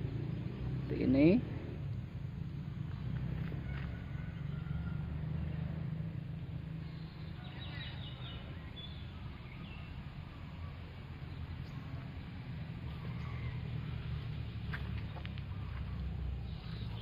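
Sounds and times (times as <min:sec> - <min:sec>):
bird chirps: 0:06.8 - 0:14.3, 0:15.0 - 0:17.0.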